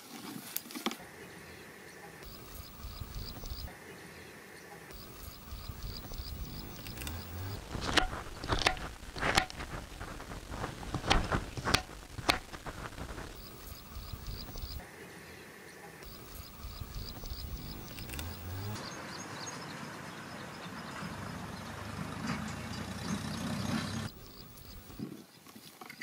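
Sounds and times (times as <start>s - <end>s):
insect chirping: 2.2s - 3.8s, 4.9s - 14.8s, 16.0s - 18.8s, 24.1s - 25.0s.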